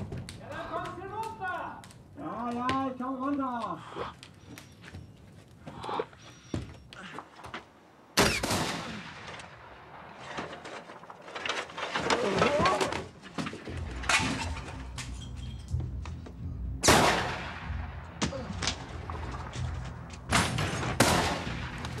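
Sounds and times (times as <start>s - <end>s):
slate roof tiles cracking and clattering: 10.1s - 15.7s
music: 13.6s - 22.0s.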